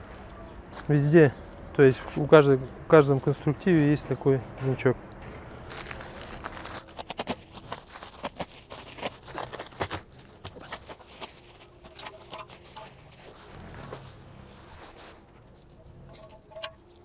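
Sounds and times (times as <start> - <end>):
bubble wrap crackling: 5.5 - 15.8.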